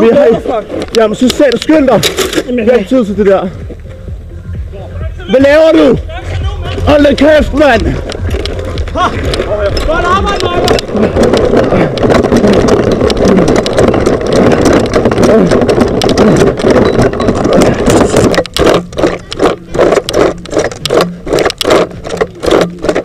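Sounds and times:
running footfalls thumping: 5.8s - 23.0s.

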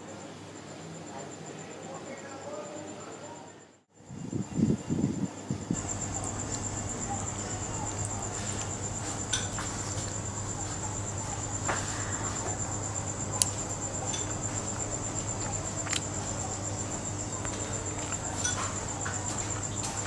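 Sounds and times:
low hum: 5.7s - 20.0s
food chewing: 5.8s - 20.0s
wooden chopsticks clicking: 13.3s - 16.5s.

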